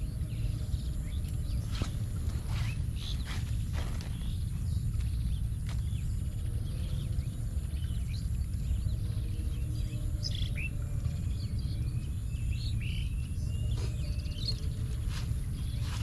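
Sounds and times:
small birds chirping: 0:00.0 - 0:16.0
steady low rumble: 0:00.0 - 0:16.0.

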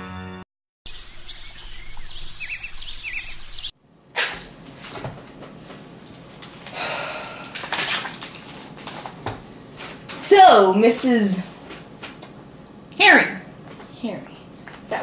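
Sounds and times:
bird chirps: 0:00.9 - 0:03.7
papers rustling and tapping: 0:04.5 - 0:06.7, 0:07.6 - 0:10.1.

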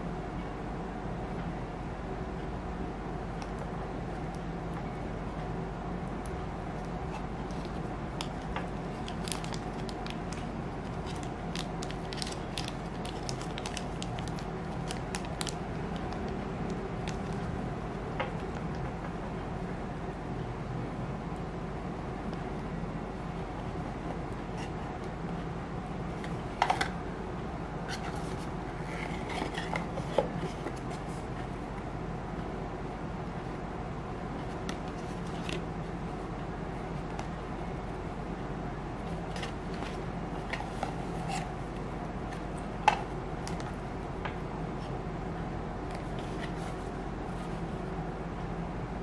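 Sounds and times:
low background hum: 0:00.0 - 0:49.0
plastic bag crinkling: 0:07.5 - 0:16.2.

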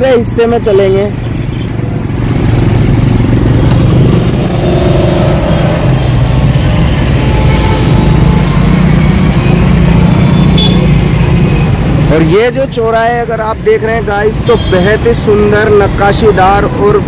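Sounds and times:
motorcycle engine: 0:00.0 - 0:12.6
road noise: 0:00.0 - 0:17.0.

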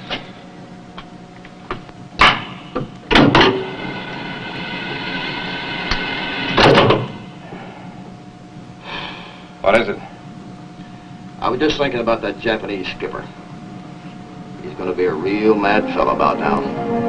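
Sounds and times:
steady high tone: 0:14.6 - 0:17.0.

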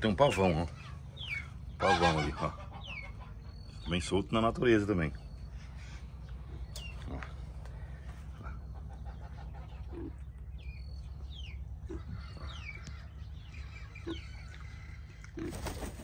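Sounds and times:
farmyard birds calling: 0:00.0 - 0:16.0
steady low rumble: 0:00.0 - 0:16.0
low clucks: 0:05.8 - 0:10.5.

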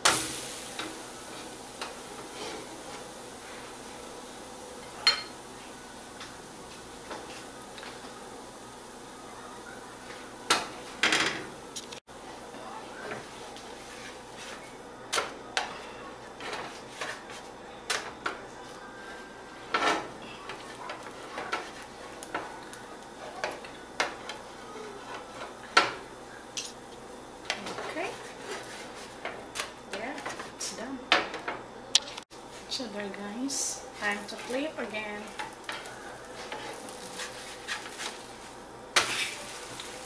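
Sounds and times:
utensils clinking on griddle pan: 0:05.0 - 0:05.4.

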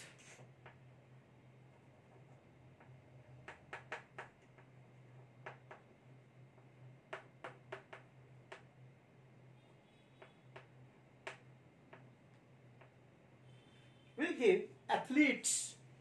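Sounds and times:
low steady hum: 0:00.0 - 0:16.0
chalk tapping on blackboard: 0:02.1 - 0:05.9, 0:06.6 - 0:08.7, 0:12.8 - 0:13.0.

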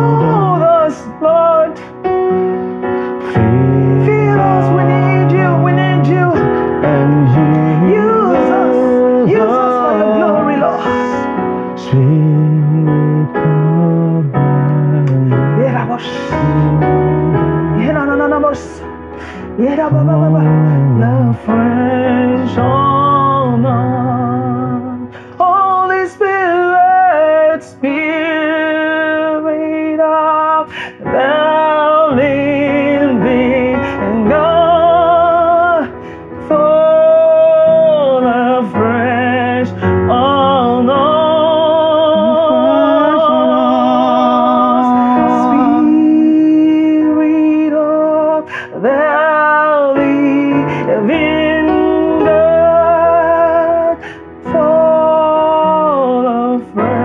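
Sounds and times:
electronic keyboard: 0:00.0 - 0:57.0
woman singing gospel melody: 0:03.4 - 0:11.2.

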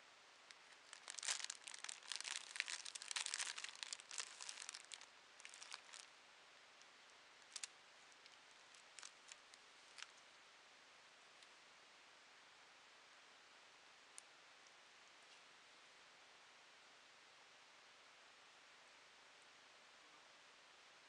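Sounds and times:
plastic sleeve crinkling: 0:00.5 - 0:06.1, 0:07.4 - 0:10.3.

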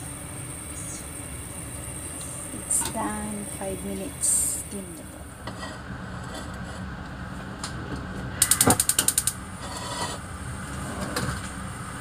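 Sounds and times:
steady low hum: 0:00.0 - 0:12.0
gas stove igniter clicking: 0:08.4 - 0:09.4.

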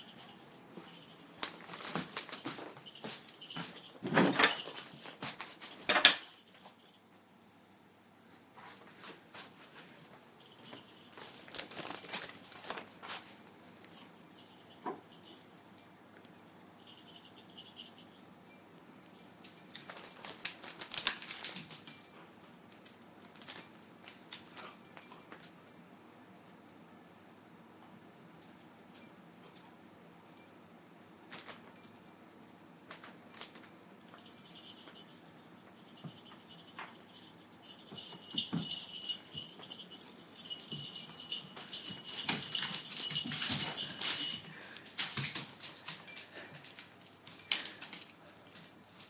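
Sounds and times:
cat and dog scuffling: 0:00.0 - 0:07.0, 0:08.5 - 0:15.4, 0:35.7 - 0:49.0
pet paws pattering: 0:00.0 - 0:07.0, 0:08.6 - 0:15.9, 0:19.3 - 0:22.2, 0:32.9 - 0:49.0.

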